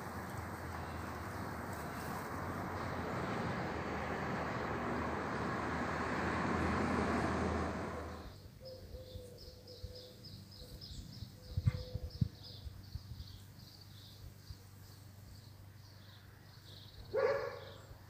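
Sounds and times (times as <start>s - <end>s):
vehicle passing: 0.0s - 8.4s.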